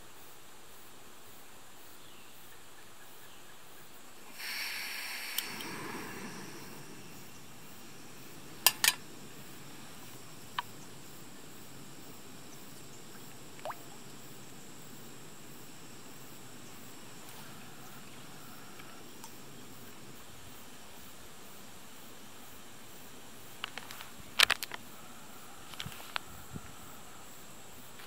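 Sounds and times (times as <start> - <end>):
camp stove burning with a hiss: 4.1 - 28.0
faint click: 4.4 - 6.8, 25.7 - 26.3.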